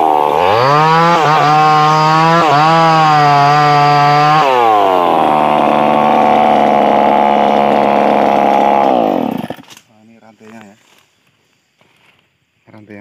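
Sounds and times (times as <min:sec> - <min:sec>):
chainsaw running: 0:00.0 - 0:09.8.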